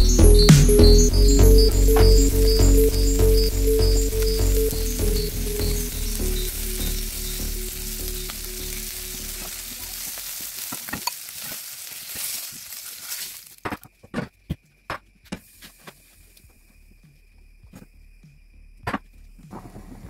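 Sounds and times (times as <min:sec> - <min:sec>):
background music: 0:00.0 - 0:10.0
fish sizzling in oil: 0:06.0 - 0:13.6.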